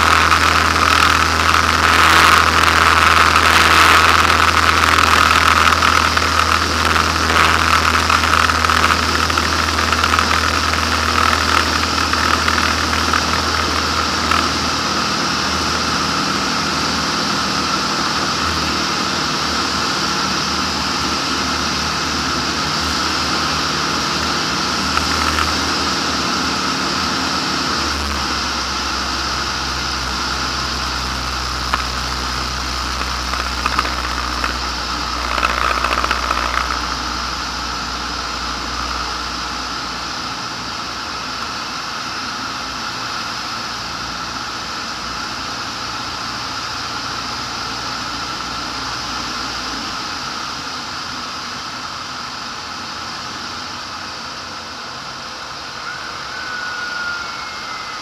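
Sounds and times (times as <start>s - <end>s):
short crackles: 0.0s - 14.6s, 24.7s - 25.8s, 30.8s - 37.4s
light aircraft engine and propeller: 0.0s - 58.0s.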